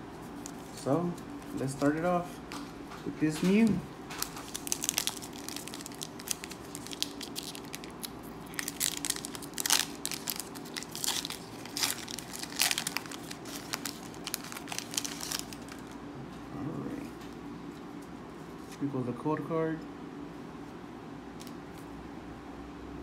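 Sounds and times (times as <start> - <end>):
foil wrapper tearing and crinkling: 4.2 - 16.0.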